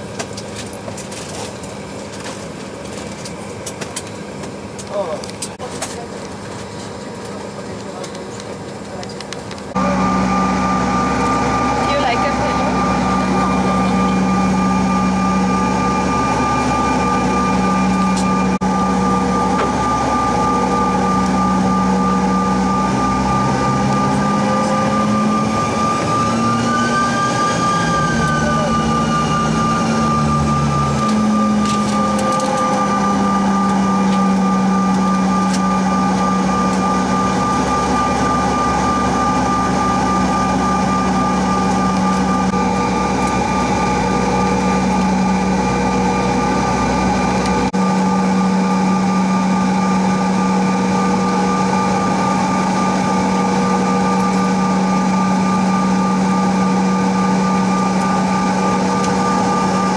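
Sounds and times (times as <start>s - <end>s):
jet engine whine and hum: 0.0s - 59.9s.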